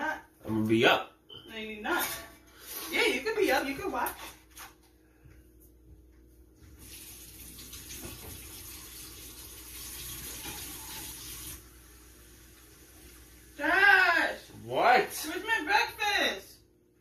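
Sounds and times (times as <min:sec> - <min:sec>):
water running into sink: 0:06.7 - 0:13.8.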